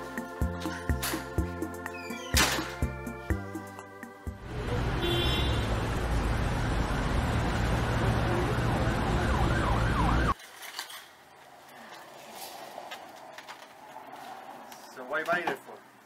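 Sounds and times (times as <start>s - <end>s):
city traffic rumble: 2.3s - 10.4s, 11.1s - 16.0s
siren wailing: 7.9s - 10.4s.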